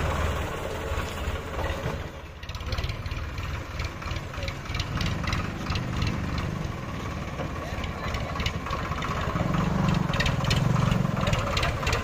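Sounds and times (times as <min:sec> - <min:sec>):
diesel engine throbbing: 0:00.0 - 0:12.0.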